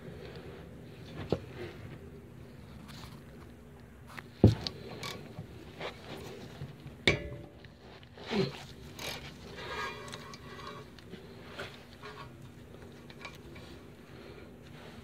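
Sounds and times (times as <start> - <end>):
metal knocks and scrapes: 9.2 - 13.8.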